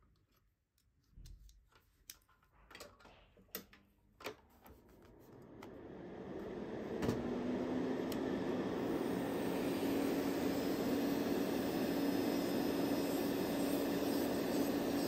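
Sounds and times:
small electric motor humming: 8.8s - 15.0s.

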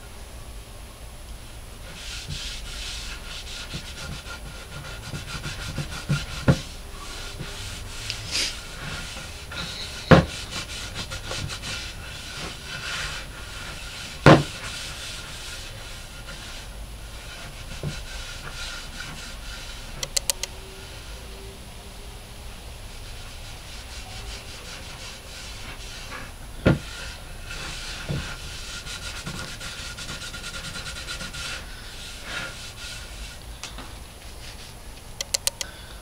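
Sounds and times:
cloth rubbing on wooden board: 1.8s - 20.0s, 22.9s - 33.5s, 34.1s - 34.8s
quick clicks: 20.0s - 20.5s, 35.2s - 35.7s.

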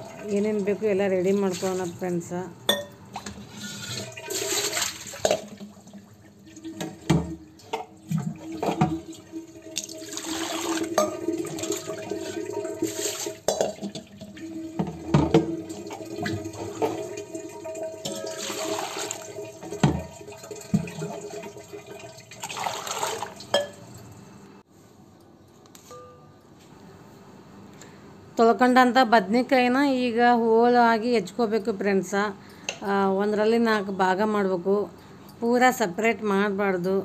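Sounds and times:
vegetables being rinsed: 0.0s - 2.5s, 3.1s - 23.6s
water splashing into a metal pot: 2.7s - 24.0s
knocks of vegetables and vessels: 14.8s - 17.1s, 18.0s - 21.1s.

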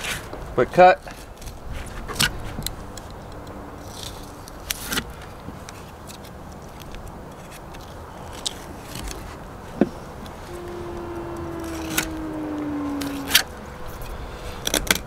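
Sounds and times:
low background rumble: 10.2s - 14.8s.

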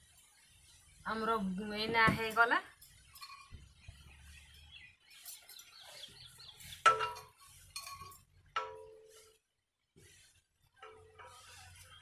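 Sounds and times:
metallic clink of steel tumbler: 2.2s - 3.6s, 6.8s - 9.3s
faint metal ringing: 2.2s - 3.9s, 6.6s - 9.4s, 10.7s - 12.0s.

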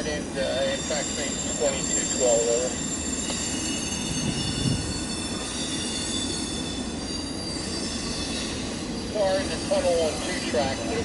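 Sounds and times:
high wheel squeal: 0.0s - 10.7s
train wheels rumbling on rail: 0.0s - 11.0s.

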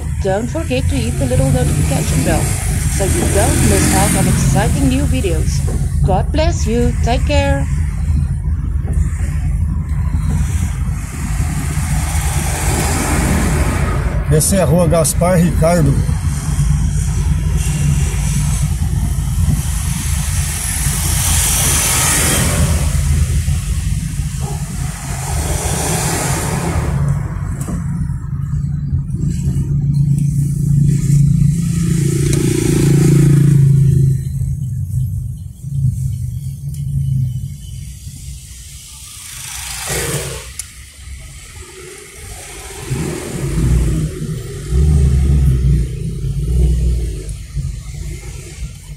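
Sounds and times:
vehicle passing close by: 0.0s - 5.8s, 10.4s - 28.6s
car engine and road hum: 0.0s - 48.9s
hiss: 19.6s - 27.0s, 37.9s - 44.3s.

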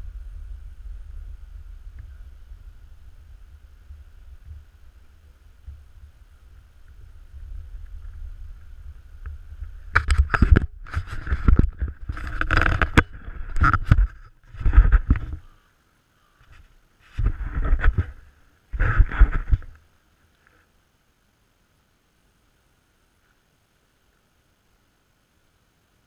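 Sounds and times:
wind rumble on microphone: 0.0s - 15.5s, 16.4s - 19.8s
camera handling rubbing and knocking: 9.9s - 15.4s, 16.4s - 18.2s, 18.8s - 19.8s.

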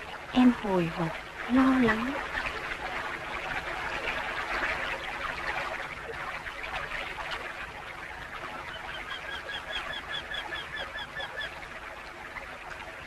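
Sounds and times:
film soundtrack hiss: 0.0s - 13.0s.

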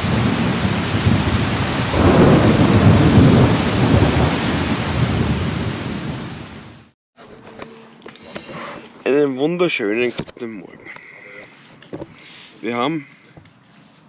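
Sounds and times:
thunder rumbling: 0.0s - 6.8s
heavy rain pouring: 0.0s - 6.9s.

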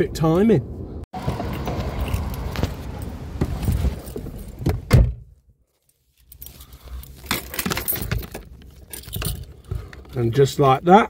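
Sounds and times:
car keys jangling: 1.4s - 4.6s, 6.1s - 10.6s.

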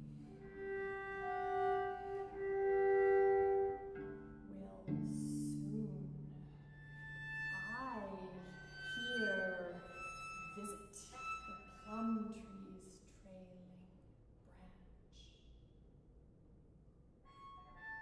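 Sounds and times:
cello bowing sustained notes: 0.0s - 12.9s, 17.3s - 18.0s.

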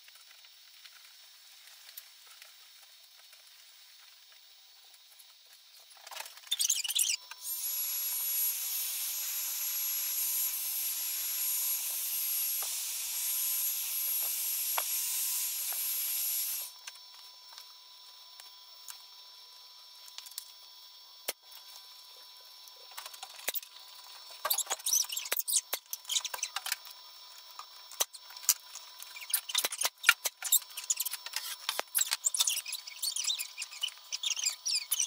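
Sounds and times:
heat gun blowing: 7.4s - 16.8s.

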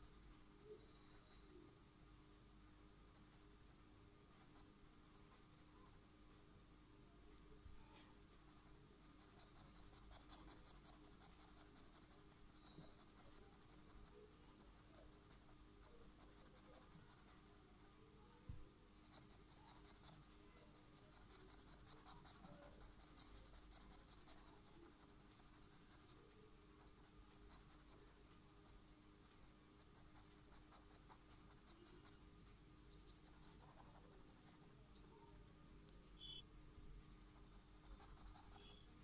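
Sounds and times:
marker scratching on paper: 8.4s - 17.6s, 19.0s - 26.2s.

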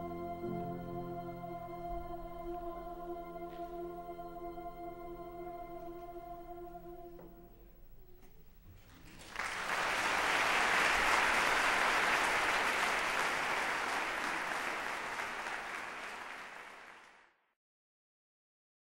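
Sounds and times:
audience applauding: 8.9s - 17.3s.

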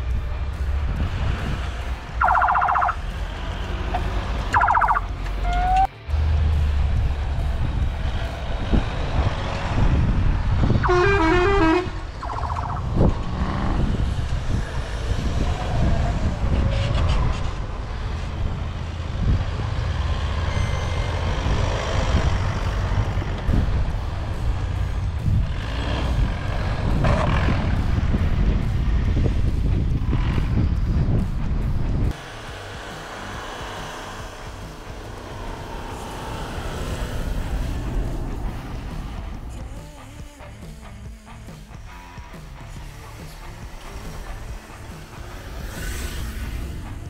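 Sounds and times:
truck engine rumbling under load: 0.0s - 47.0s
vehicle horn: 5.4s - 5.9s, 10.7s - 12.1s.

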